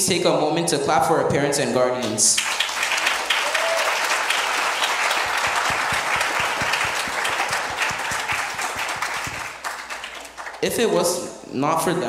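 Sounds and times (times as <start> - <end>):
close sharp claps: 2.0 - 10.9
congregation applauding: 2.0 - 11.0.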